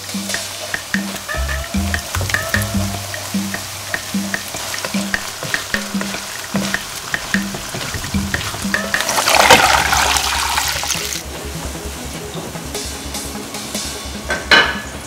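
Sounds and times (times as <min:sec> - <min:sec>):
water hissing in hot pan: 0:00.0 - 0:11.2
quiet bubbling: 0:00.8 - 0:11.1
wooden spatula stirring: 0:01.3 - 0:10.2
paste frying in oil in wok: 0:01.3 - 0:11.2.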